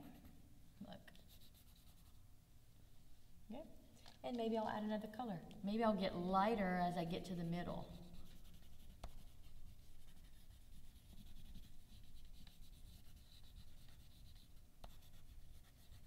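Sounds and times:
crayon scratching on paper: 7.4s - 16.0s.

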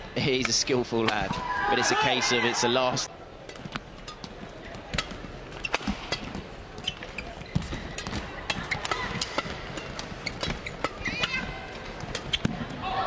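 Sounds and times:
rackets hitting shuttlecock: 3.4s - 12.7s
arena crowd murmur: 11.0s - 13.0s.

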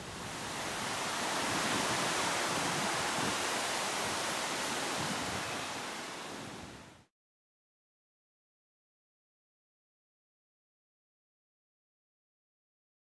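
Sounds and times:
wind blowing through trees: 0.0s - 7.1s.

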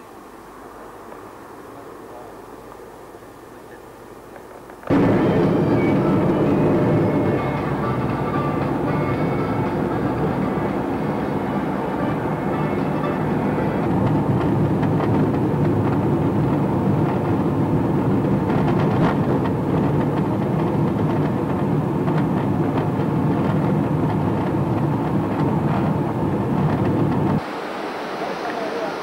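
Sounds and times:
car driving from inside cabin: 4.8s - 27.6s.

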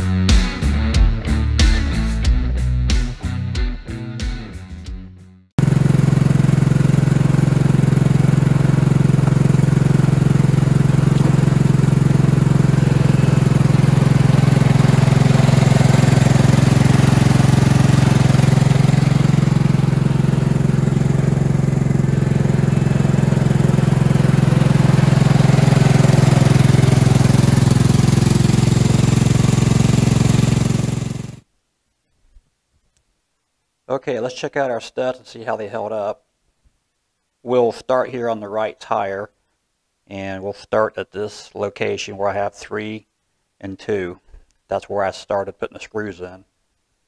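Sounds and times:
lawn tractor engine running: 5.6s - 31.5s.

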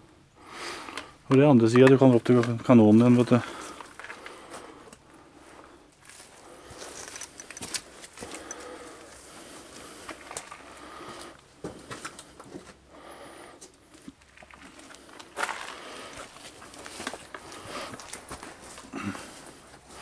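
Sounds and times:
footsteps crunching on gravel: 14.3s - 20.0s.

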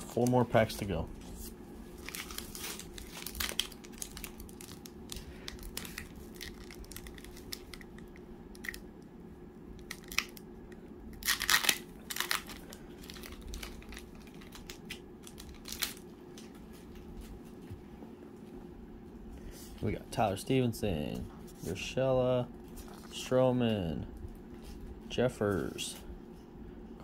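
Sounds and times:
foil wrapper tearing and crinkling: 2.0s - 8.8s, 9.8s - 10.4s, 11.1s - 16.0s.

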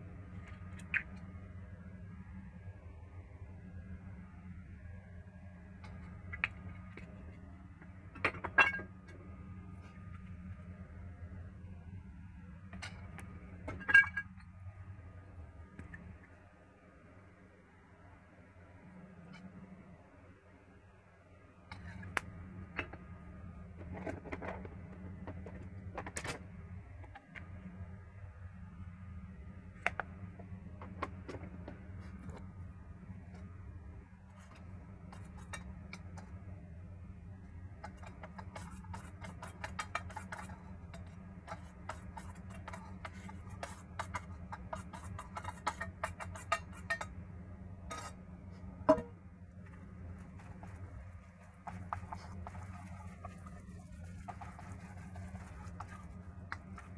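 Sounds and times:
steady low hum: 0.0s - 56.9s
spoon scraping metal bowls: 37.8s - 47.2s, 47.8s - 48.3s, 51.4s - 56.9s.

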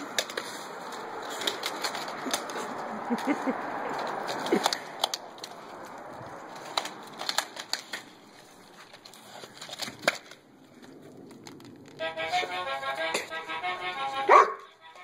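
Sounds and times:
dog claws tapping on concrete: 0.0s - 12.0s
toy playing electronic tune: 12.0s - 15.0s.

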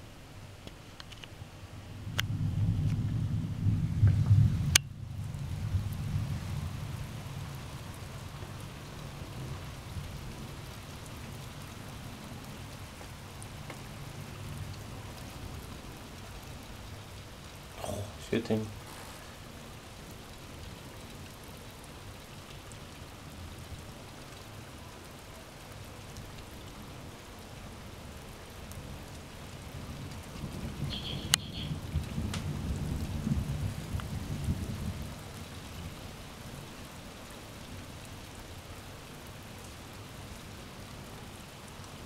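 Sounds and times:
steady rain falling: 0.0s - 42.0s
thunder rumbling: 1.9s - 11.4s, 29.8s - 36.0s.

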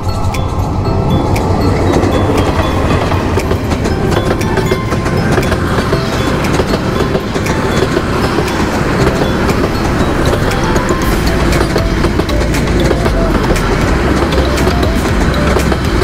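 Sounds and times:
train rumbling past on rails: 0.0s - 16.0s
train wheels clicking and rattling: 0.0s - 16.0s.

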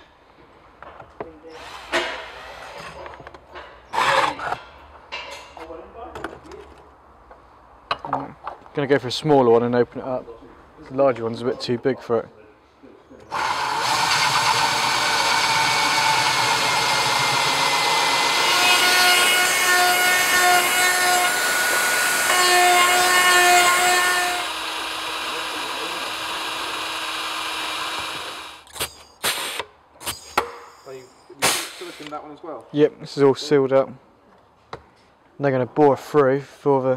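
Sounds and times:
hole saw cutting plastic: 13.3s - 29.6s
rotary tool whining: 13.3s - 30.4s.

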